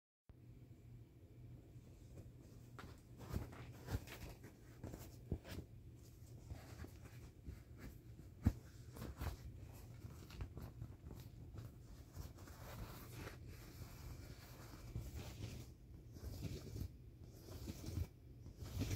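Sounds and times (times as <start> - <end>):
hand rubbing vinyl: 1.8 - 18.9.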